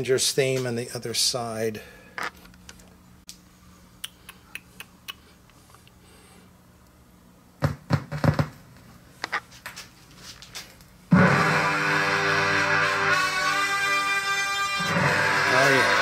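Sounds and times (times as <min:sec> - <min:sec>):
faint steady hum: 0:00.0 - 0:11.1.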